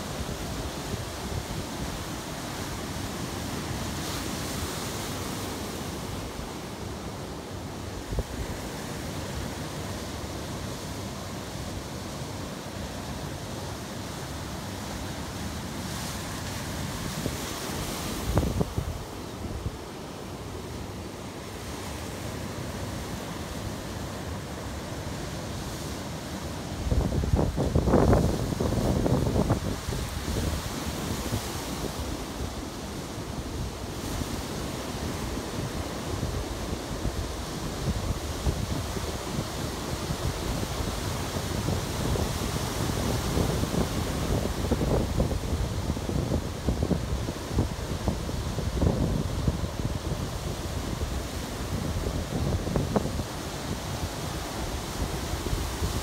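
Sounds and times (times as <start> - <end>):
wind buffeting microphone: 17.0 - 19.8, 26.8 - 32.0, 37.0 - 56.0.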